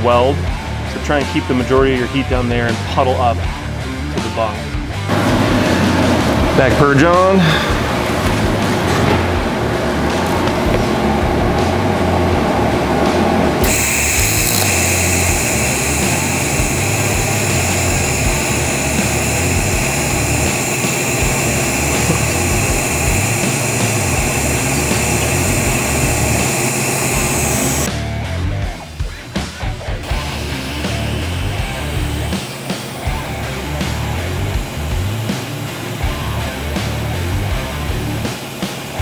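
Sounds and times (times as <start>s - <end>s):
welding arc buzzing: 13.6s - 27.9s, 30.0s - 39.0s.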